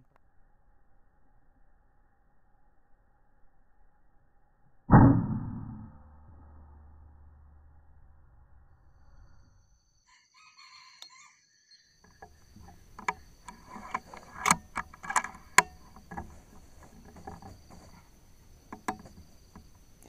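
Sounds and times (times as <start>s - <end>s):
rooster calling: 10.1s - 11.4s.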